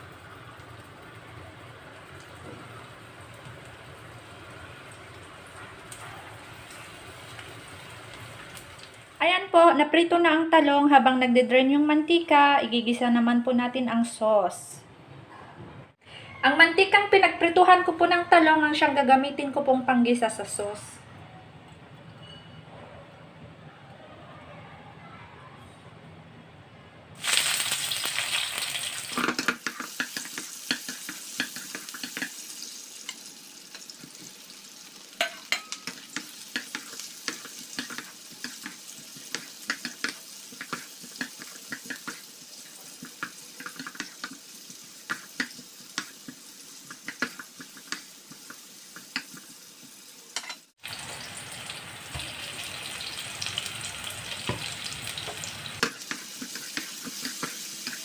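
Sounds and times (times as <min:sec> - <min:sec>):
vegetables sizzling in hot oil: 0:00.0 - 0:09.2, 0:27.2 - 0:58.0
spatula tapping against pan: 0:35.2 - 0:42.2, 0:45.1 - 0:46.1, 0:46.9 - 0:49.4.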